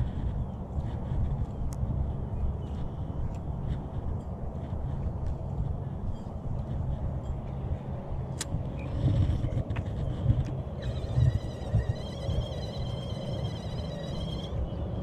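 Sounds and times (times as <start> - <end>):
wind rumbling on microphone: 0.0 - 15.0
fishing reel gears whirring: 8.8 - 15.0.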